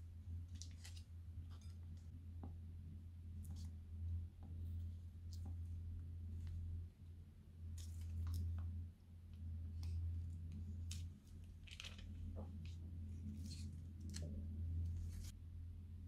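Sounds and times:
soft wet squishes: 0.0 - 15.4
steady low hum: 0.0 - 16.0
plastic bag crinkling and clicking: 10.9 - 12.3.

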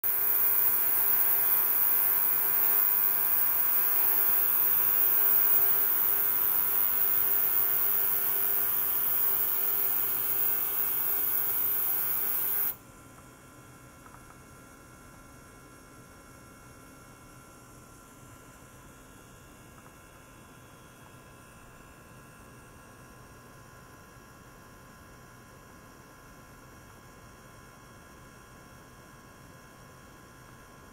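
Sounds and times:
bright high hiss: 0.0 - 12.8
faint hum: 0.0 - 12.8
machine hum of fixed tones: 0.0 - 12.8.

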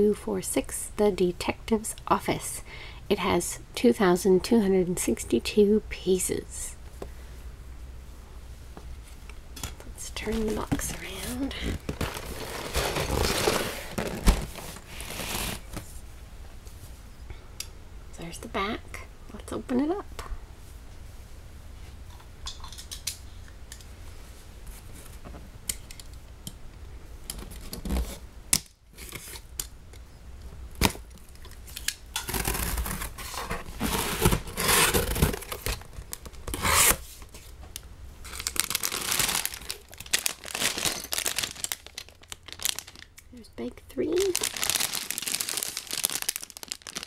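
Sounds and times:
plastic bags crinkling: 10.0 - 15.8, 38.2 - 43.2, 44.0 - 47.0
cardboard tearing: 11.3 - 15.8, 32.2 - 37.0, 38.3 - 41.8.

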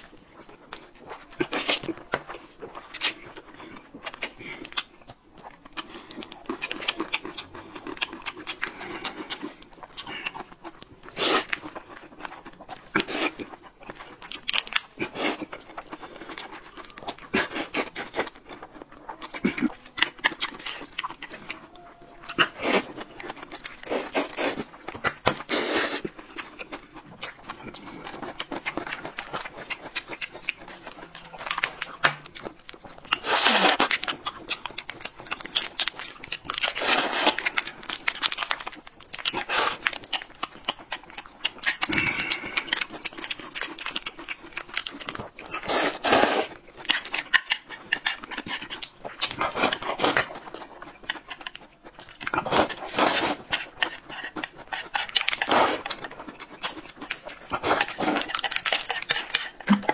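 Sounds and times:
chewing: 0.0 - 59.9
slurping noodles: 11.0 - 12.1, 12.9 - 13.6, 14.9 - 18.7, 22.2 - 34.2, 36.4 - 38.2, 45.2 - 46.8, 52.4 - 56.1.

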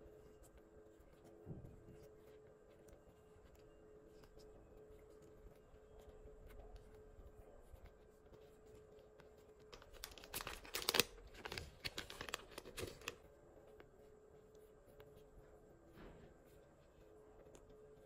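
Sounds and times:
plastic pouch crinkling and tearing: 9.7 - 13.2.

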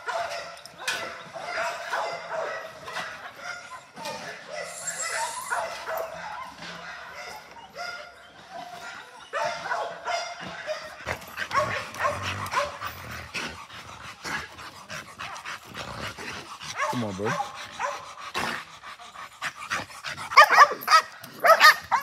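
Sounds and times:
dogs barking and yipping: 0.0 - 22.0.

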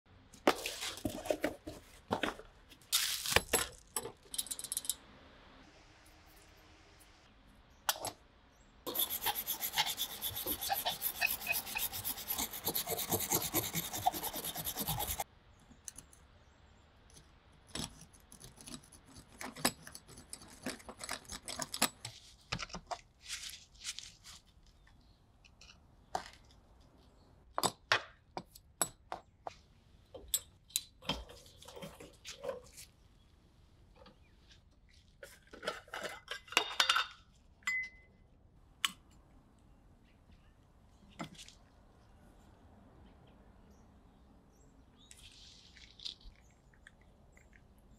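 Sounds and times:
metal scraping against wood: 8.9 - 15.2.

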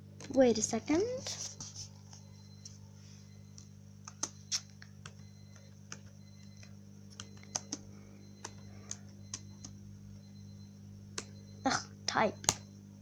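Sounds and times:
steady low hum: 0.0 - 13.0
laptop keyboard typing: 3.5 - 9.8.

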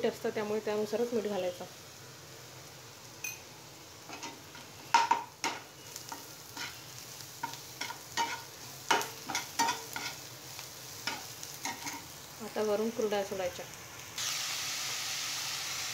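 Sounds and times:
onions sizzling in oil: 0.0 - 15.9
spatula scraping a metal pan: 6.0 - 6.8.

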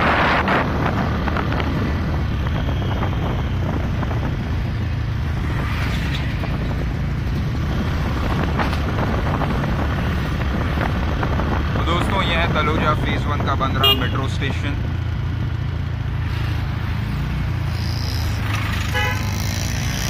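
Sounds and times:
road noise: 0.0 - 20.0
vehicle engine rumble: 0.0 - 20.0.

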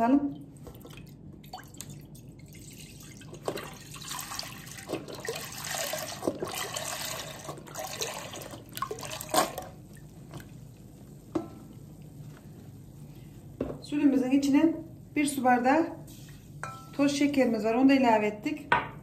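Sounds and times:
milk pouring into a metal pot: 0.8 - 9.7.

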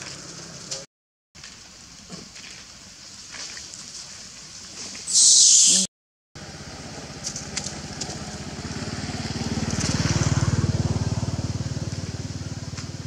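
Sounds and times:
motorcycle engine passing: 6.4 - 13.0.

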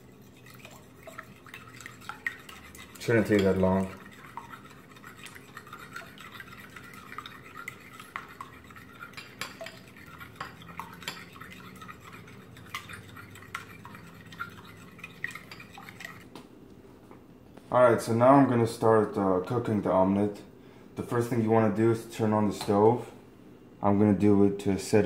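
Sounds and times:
fork clinking against bowl: 2.4 - 14.8.

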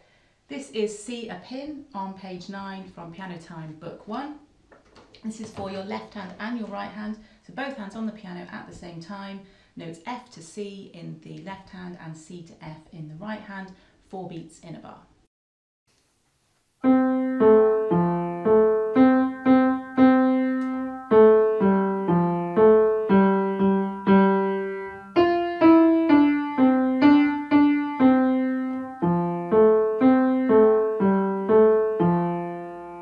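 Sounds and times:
upright piano tune: 16.8 - 33.0.

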